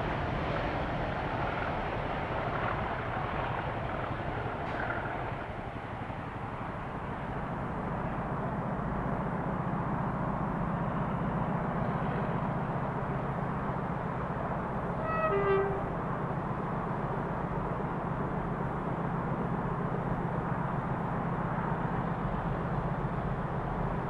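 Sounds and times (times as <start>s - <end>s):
diesel locomotive engine running: 0.0s - 24.0s
two-tone train horn: 15.0s - 16.0s.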